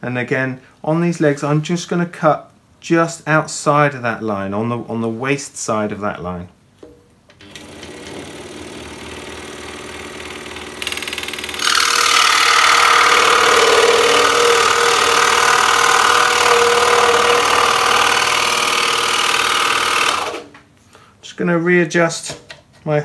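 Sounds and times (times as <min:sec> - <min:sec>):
scroll saw cutting wood: 0:07.5 - 0:20.5.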